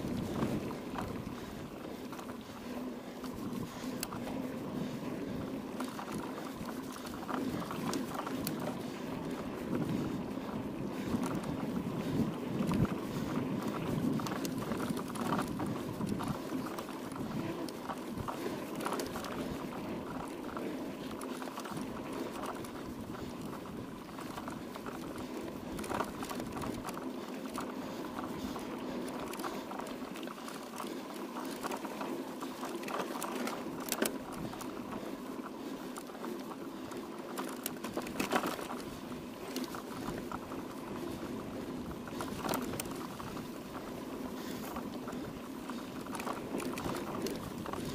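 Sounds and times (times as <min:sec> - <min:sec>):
bike tyres on gravel: 0:00.0 - 0:47.9.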